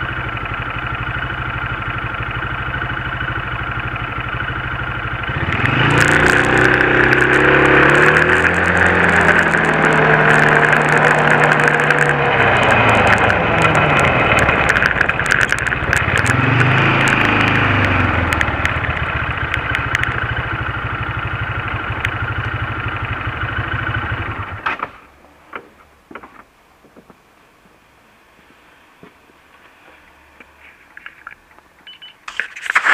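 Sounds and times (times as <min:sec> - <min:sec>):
quad bike engine accelerating: 0:00.0 - 0:24.7.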